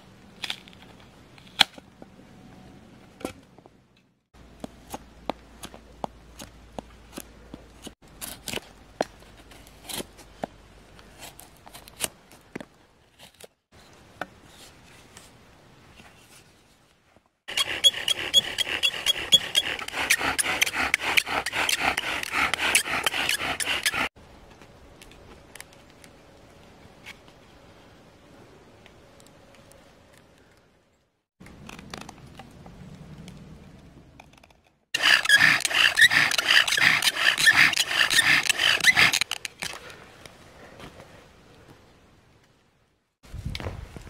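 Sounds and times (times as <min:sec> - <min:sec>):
knife carving wood: 0:04.6 - 0:10.3, 0:17.5 - 0:24.2, 0:35.0 - 0:39.8
bow drill grinding with squeak: 0:17.5 - 0:24.1, 0:35.0 - 0:39.5.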